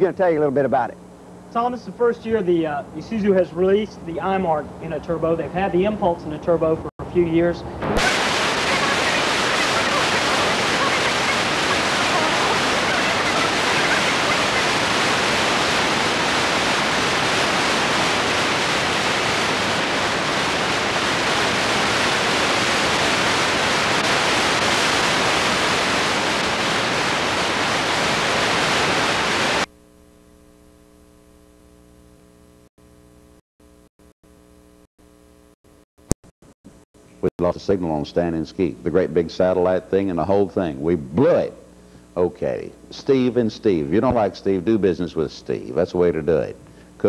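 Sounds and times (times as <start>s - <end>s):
loud static hiss: 0.0s - 33.3s, 37.0s - 47.0s
faint low hum: 37.1s - 47.0s.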